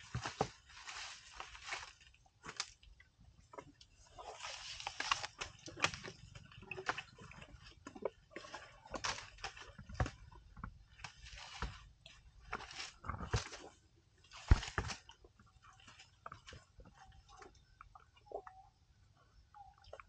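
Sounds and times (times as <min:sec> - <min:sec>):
elephant crunching leaves: 0:00.0 - 0:02.8, 0:04.0 - 0:16.8
stems snapping: 0:01.6 - 0:02.8, 0:04.7 - 0:06.2.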